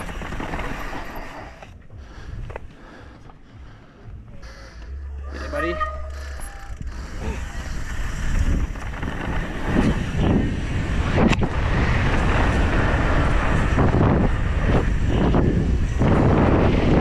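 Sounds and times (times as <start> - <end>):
bike tyres rolling over dirt and rock: 0.0 - 2.7, 6.0 - 17.0
wind on microphone: 6.7 - 17.0.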